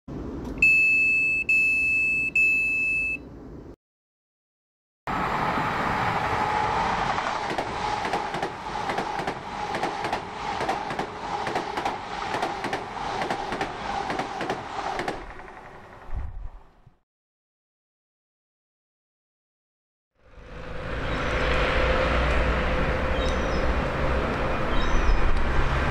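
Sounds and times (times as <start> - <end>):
vehicle droning: 5.1 - 16.9, 20.2 - 25.9.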